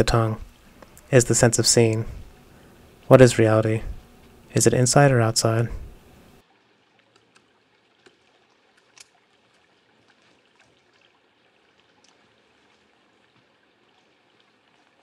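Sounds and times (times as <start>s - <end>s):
faint outdoor hush: 0.0s - 6.4s.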